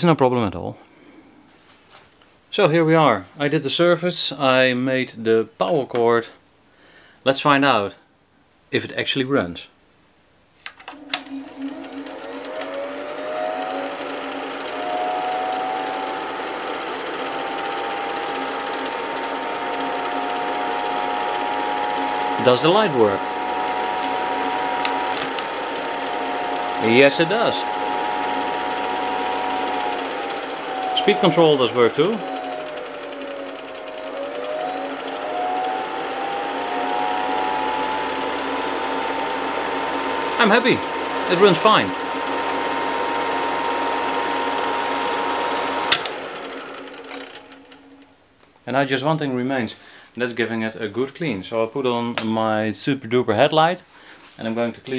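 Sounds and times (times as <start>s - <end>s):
film projector motor whirring: 10.8s - 48.2s
projector switch click: 45.9s - 46.2s.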